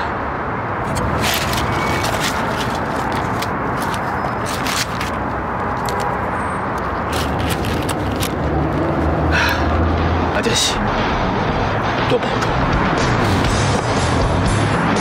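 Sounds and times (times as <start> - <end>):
outdoor traffic noise: 0.0 - 15.0
rustling: 0.9 - 6.0.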